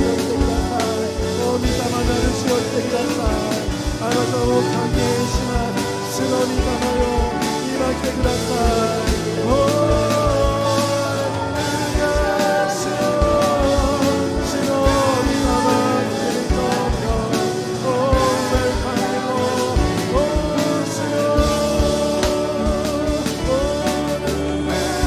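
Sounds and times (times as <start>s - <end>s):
electric guitar: 0.0s - 25.0s
electronic drum kit beat: 0.0s - 25.0s
man singing into microphone: 0.0s - 25.0s.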